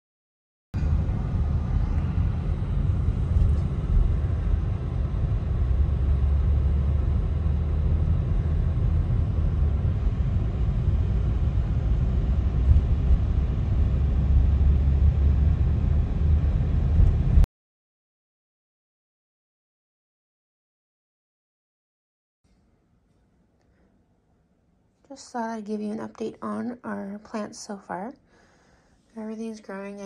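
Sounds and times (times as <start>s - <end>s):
car cabin rumble: 0.8s - 17.4s.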